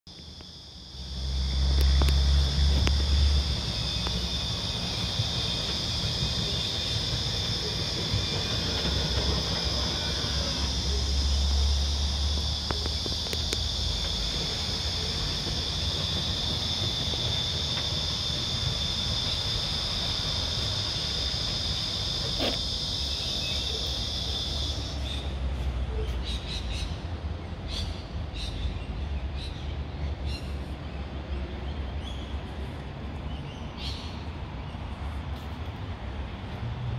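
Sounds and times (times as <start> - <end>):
high-pitched insect chorus: 0.1 - 25.6.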